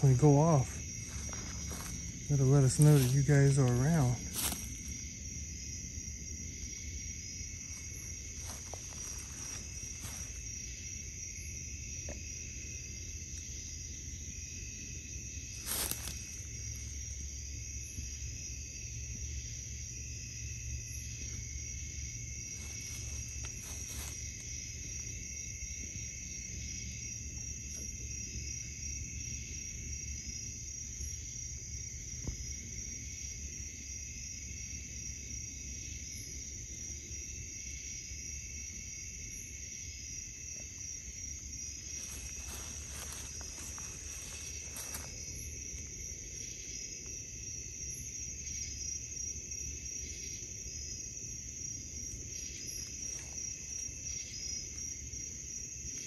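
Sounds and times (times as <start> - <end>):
night insects chorus: 0.0 - 56.0
faint rustles: 0.5 - 5.1, 7.6 - 10.6, 15.5 - 17.2, 22.5 - 25.1, 41.4 - 46.6.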